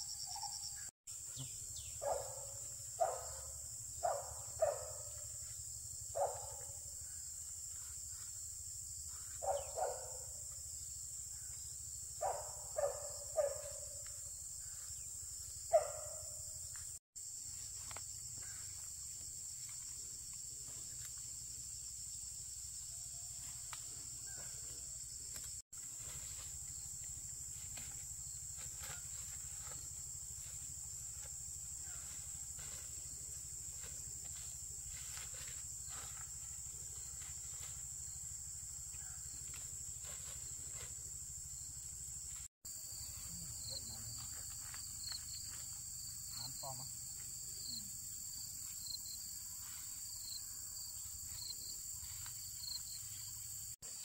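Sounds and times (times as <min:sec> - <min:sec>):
dog barking: 0:02.0 - 0:05.3, 0:06.1 - 0:06.8, 0:09.3 - 0:10.4, 0:12.2 - 0:14.1, 0:15.7 - 0:16.4.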